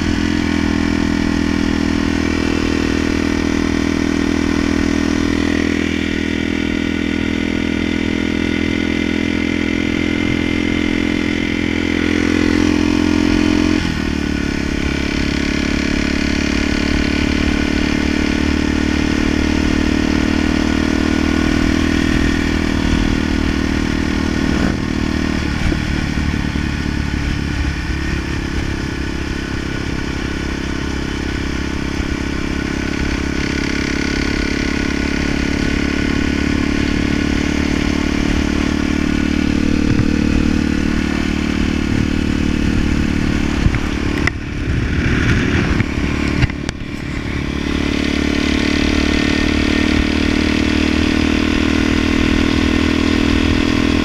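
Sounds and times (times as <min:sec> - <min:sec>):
dirt bike engine running: 0:00.0 - 0:54.0.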